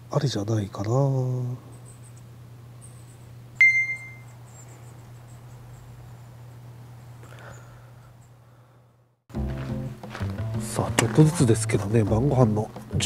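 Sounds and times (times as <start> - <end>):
steady low hum: 0.0 - 9.2
bright ding: 3.6 - 4.3
faint high chirps: 3.6 - 4.4.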